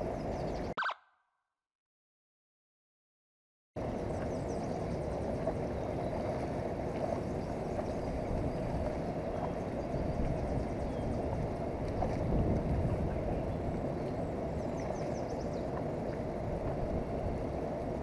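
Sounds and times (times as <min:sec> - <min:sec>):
wind buffeting microphone: 0:03.8 - 0:18.0.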